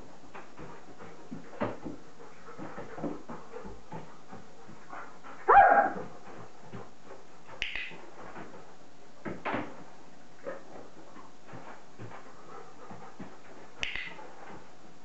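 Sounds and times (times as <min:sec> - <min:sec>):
dog paws tapping on wood: 0:00.0 - 0:14.8
dog whining: 0:05.5 - 0:06.0
sharp click: 0:07.6 - 0:08.0, 0:13.8 - 0:14.2.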